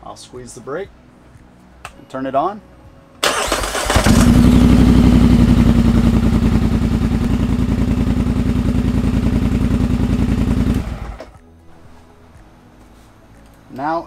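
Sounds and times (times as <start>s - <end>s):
engine idling: 3.2s - 11.4s.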